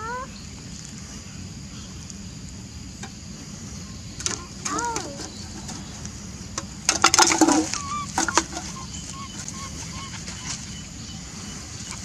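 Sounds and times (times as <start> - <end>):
soft high peeps: 7.7 - 11.7.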